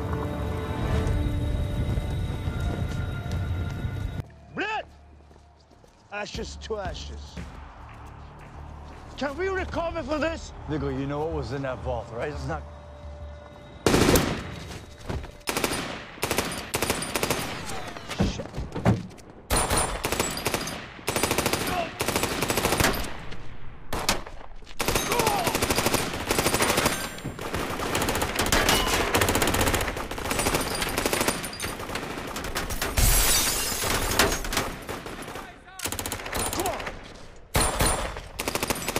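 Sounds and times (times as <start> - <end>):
gunshots: 13.9 - 14.6, 15.4 - 18.2, 19.5 - 33.2, 33.8 - 38.9.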